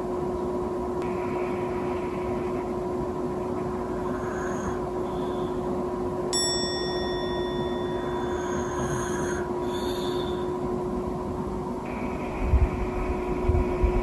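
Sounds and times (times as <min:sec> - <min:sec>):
low room hum: 0:00.0 - 0:14.0
bright ringing tone: 0:06.3 - 0:10.7.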